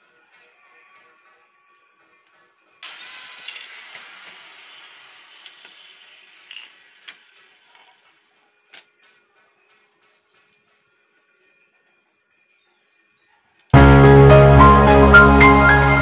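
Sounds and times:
faint background music: 0:00.0 - 0:04.2, 0:07.4 - 0:16.0
power tool cutting plywood: 0:02.8 - 0:08.2.

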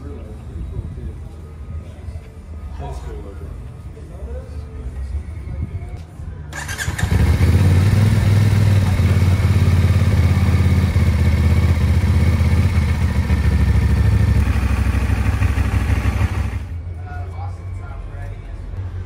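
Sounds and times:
motorcycle engine running: 0:06.6 - 0:16.8.

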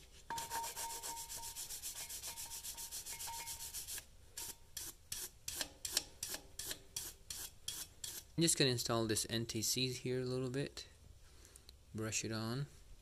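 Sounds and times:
wire brush scrubbing metal: 0:00.3 - 0:08.3.

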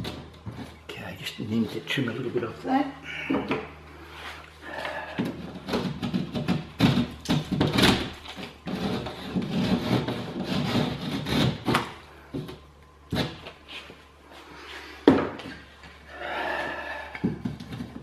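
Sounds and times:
knife scraping plasterboard: 0:08.4 - 0:11.9.

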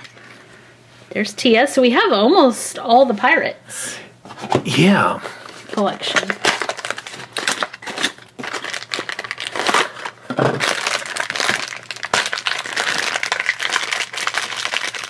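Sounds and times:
foil bag crinkling and tearing: 0:05.4 - 0:15.0.

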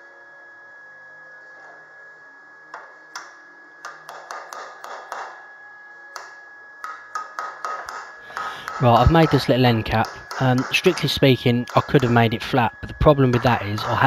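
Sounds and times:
hammer tapping sheet metal: 0:03.2 - 0:05.4, 0:06.2 - 0:14.0.

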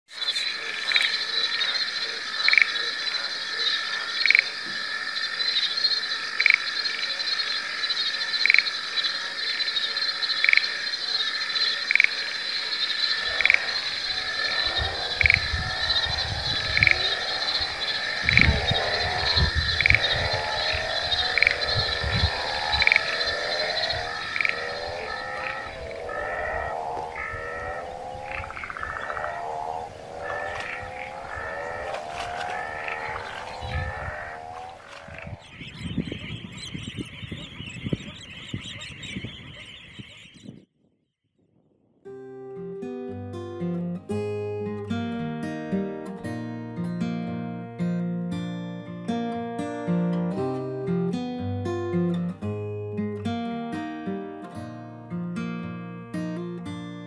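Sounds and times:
sharp frog call: 0:00.1 - 0:35.5
frogs trilling: 0:00.1 - 0:40.5
low fast pulsing frog chorus: 0:00.1 - 0:40.5.

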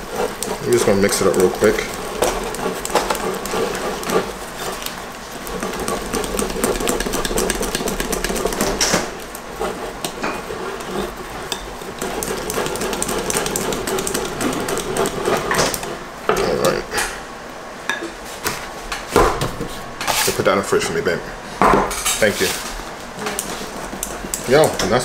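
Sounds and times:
whisk clicking against glass bowl: 0:00.0 - 0:09.0, 0:11.5 - 0:15.9
batter stirring: 0:00.0 - 0:16.9, 0:22.2 - 0:25.0.

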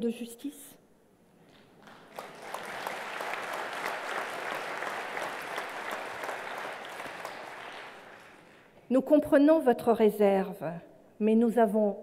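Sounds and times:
large audience applauding: 0:01.5 - 0:08.8.

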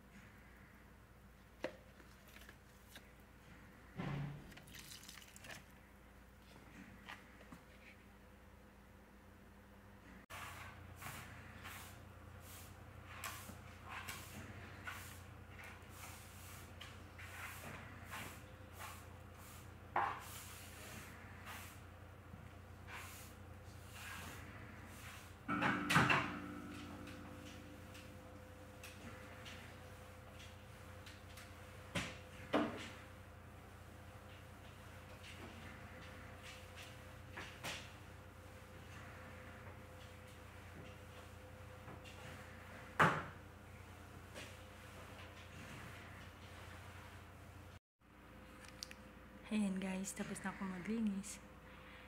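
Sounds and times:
water pouring onto soil: 0:04.5 - 0:05.7
mop swishing on tiled floor: 0:10.3 - 0:21.9, 0:22.5 - 0:25.5, 0:43.7 - 0:47.8.

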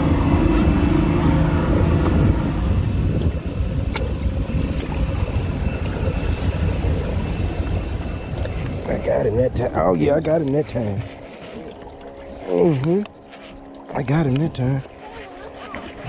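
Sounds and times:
wind on microphone: 0:00.0 - 0:12.5
boat engine rumble: 0:00.0 - 0:16.0.

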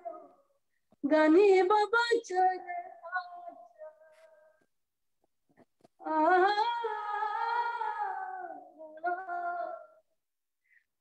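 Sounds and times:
woman singing unaccompanied: 0:01.0 - 0:04.5, 0:06.0 - 0:10.0.

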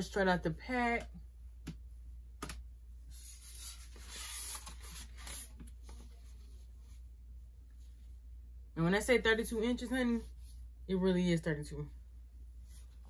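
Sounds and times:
wig hair rustling: 0:03.1 - 0:07.1.

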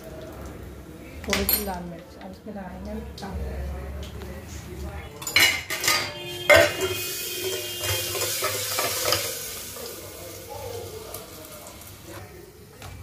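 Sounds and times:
hot oil sizzling: 0:02.4 - 0:12.8
metal pan clanks: 0:05.2 - 0:09.4.

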